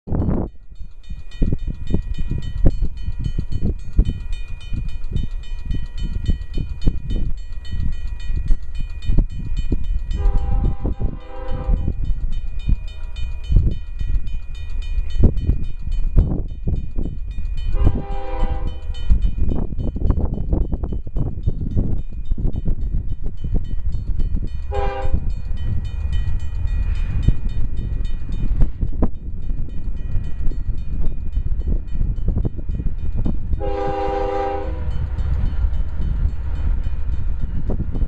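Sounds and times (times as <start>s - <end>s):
crossing bell ringing: 0.1s - 38.0s
gusty low rumble: 0.1s - 38.0s
locomotive air horn blasts: 10.2s - 12.0s, 17.7s - 18.9s, 24.7s - 25.2s, 33.6s - 35.0s.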